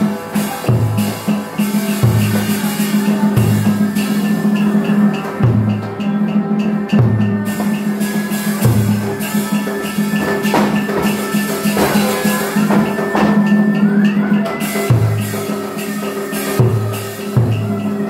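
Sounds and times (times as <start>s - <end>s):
drum and percussion strikes: 0.0s - 18.0s
held instrumental tones: 0.0s - 18.0s.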